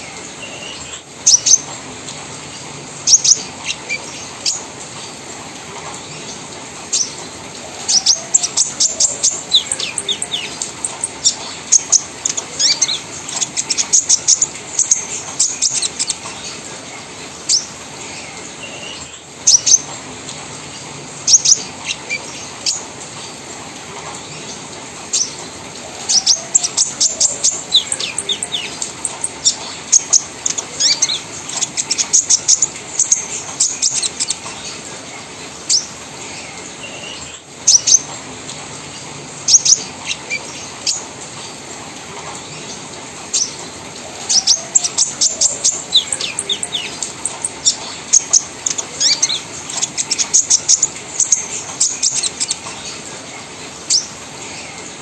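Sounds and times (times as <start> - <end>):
bird singing fast chattering song: 0.0 - 1.8, 3.0 - 5.2, 7.8 - 16.6, 21.2 - 22.9, 26.0 - 34.8, 36.8 - 38.1, 39.4 - 41.0, 44.2 - 53.0.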